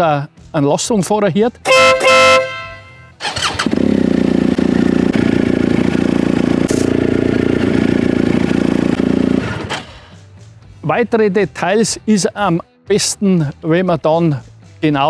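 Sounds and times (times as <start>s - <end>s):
motorcycle engine starting and idling: 2.0s - 10.3s.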